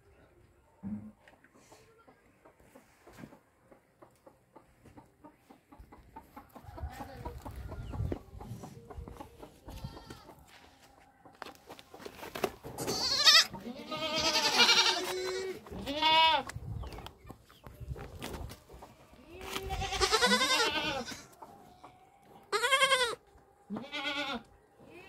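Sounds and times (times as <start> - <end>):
young goats bleating: 9.7 - 10.4, 12.8 - 16.5, 19.0 - 21.4, 22.5 - 25.0.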